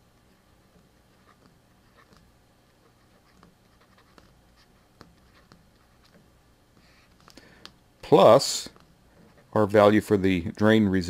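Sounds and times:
low room hum: 0:00.0 - 0:11.0
stylus scratching on a tablet: 0:00.3 - 0:07.3, 0:08.6 - 0:09.8.

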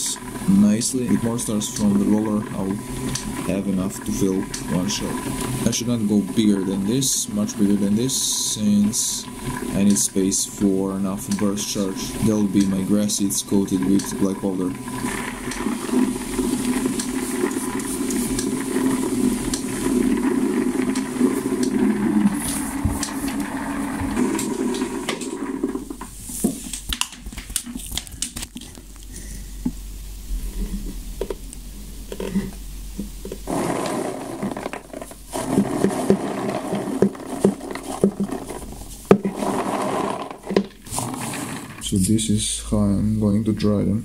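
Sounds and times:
rotating drum with stars rattling: 0:00.0 - 0:28.1, 0:30.4 - 0:42.4
clicks and scrapes: 0:13.7 - 0:29.1, 0:32.1 - 0:42.0.

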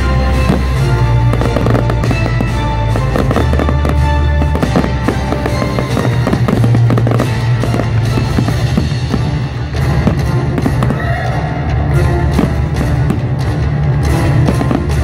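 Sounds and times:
music playing: 0:00.0 - 0:15.0
firework shells bursting: 0:00.3 - 0:11.0.

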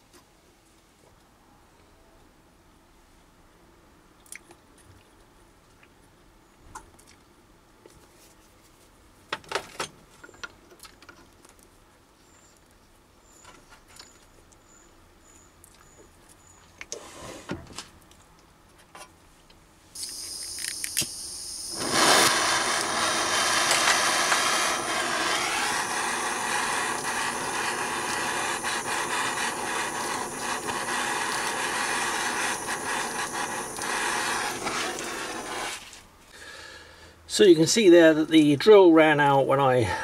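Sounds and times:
blowtorch flame rushing: 0:20.0 - 0:36.0
blowtorch gas hissing: 0:20.0 - 0:36.0
lathe motor whining: 0:21.6 - 0:35.8.

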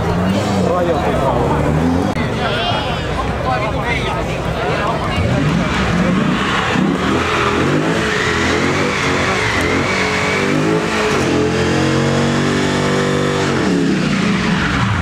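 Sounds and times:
car engine revving high: 0:05.1 - 0:15.0
tyres squealing: 0:05.4 - 0:11.4.

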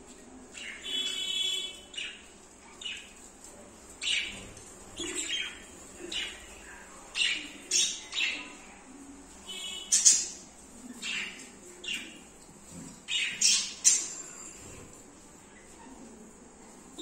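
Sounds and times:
budgerigars chirping and squawking: 0:04.0 - 0:08.6, 0:09.7 - 0:12.2, 0:13.1 - 0:14.2.

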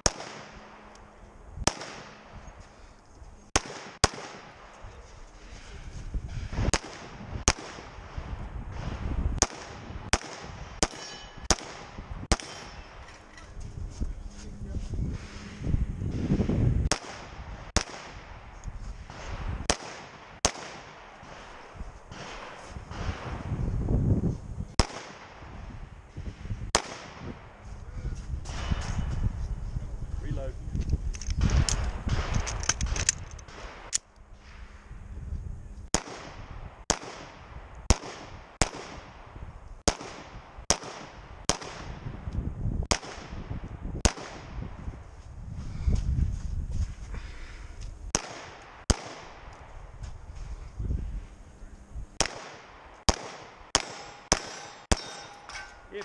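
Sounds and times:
pistol shots: 0:00.0 - 0:00.9, 0:01.6 - 0:02.3, 0:03.5 - 0:04.7, 0:06.6 - 0:08.0, 0:08.8 - 0:13.0, 0:16.9 - 0:18.3, 0:19.1 - 0:23.3, 0:24.8 - 0:25.4, 0:26.7 - 0:27.3, 0:35.9 - 0:39.2, 0:39.9 - 0:42.0, 0:42.9 - 0:43.4, 0:44.0 - 0:44.6, 0:48.1 - 0:49.6, 0:52.2 - 0:55.7.

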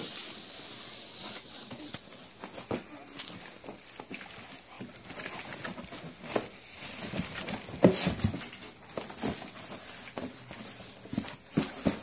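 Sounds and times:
cardboard box knocking and rustling: 0:03.5 - 0:12.0.

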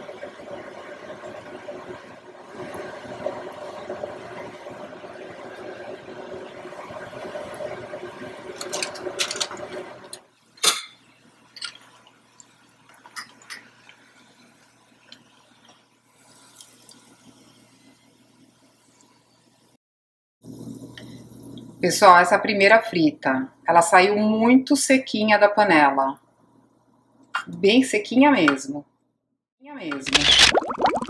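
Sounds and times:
oil sizzling: 0:00.0 - 0:19.6.

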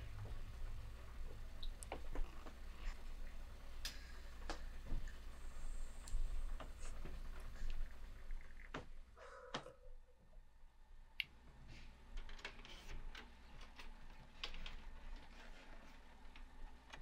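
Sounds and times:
steady low hum: 0:00.0 - 0:17.0
faint clicks and light knocks: 0:00.2 - 0:05.4.

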